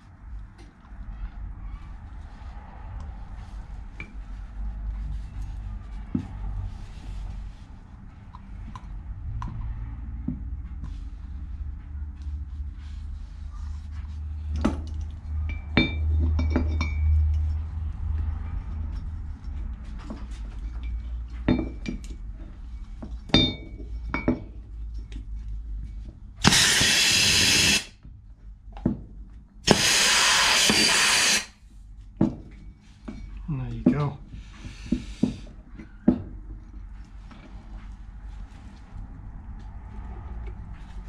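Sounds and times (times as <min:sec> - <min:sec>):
compressed air blasts: 0:26.4 - 0:27.9, 0:29.6 - 0:31.6.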